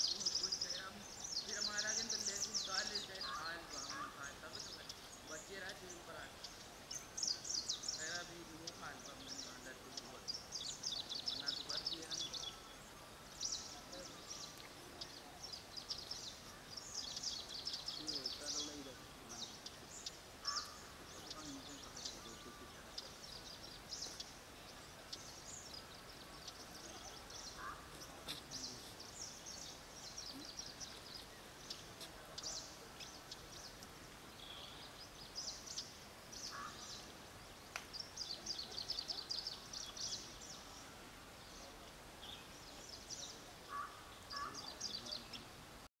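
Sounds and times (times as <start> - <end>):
faint outdoor hiss: 0.0 - 45.9
small birds chirping: 0.0 - 45.9.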